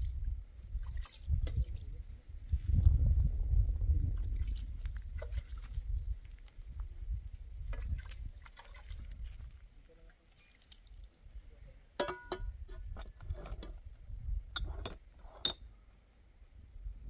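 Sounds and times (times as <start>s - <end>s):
metal dishes clinking: 12.0s - 12.6s.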